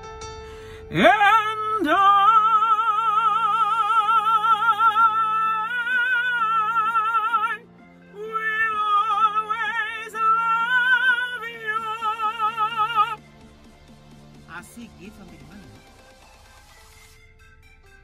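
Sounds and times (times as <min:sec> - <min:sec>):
man belting a sung note: 0:00.9 - 0:13.2.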